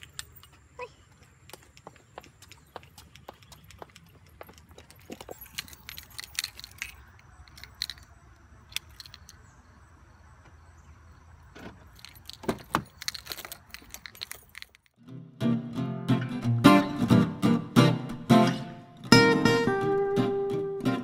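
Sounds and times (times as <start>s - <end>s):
keys jangling on a keyring: 4.3s - 8.1s, 12.0s - 14.9s.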